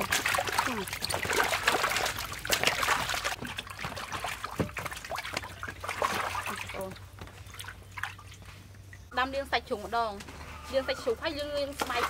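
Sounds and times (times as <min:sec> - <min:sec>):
water splashing in metal basin: 0:00.0 - 0:09.0, 0:11.7 - 0:12.0.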